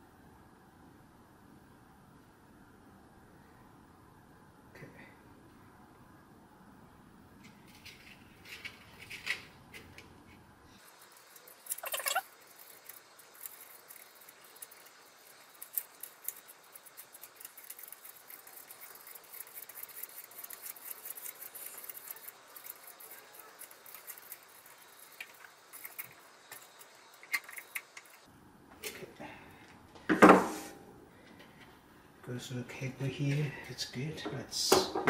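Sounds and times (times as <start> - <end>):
cables rustling and scratching: 7.4 - 29.1.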